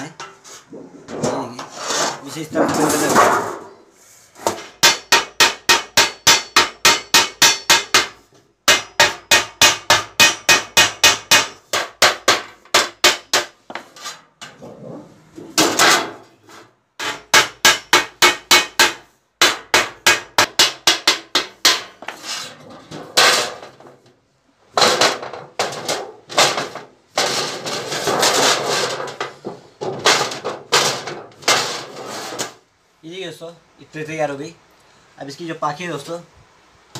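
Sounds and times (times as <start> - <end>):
mallet beating sheet metal: 4.5 - 13.9, 17.0 - 22.0.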